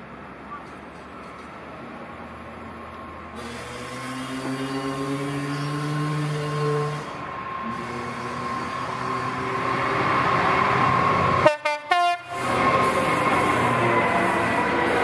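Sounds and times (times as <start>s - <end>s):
diesel locomotive running: 0.0s - 15.0s
train wagons rumbling past: 0.0s - 15.0s
train horn blasts: 3.4s - 9.8s, 11.4s - 12.6s.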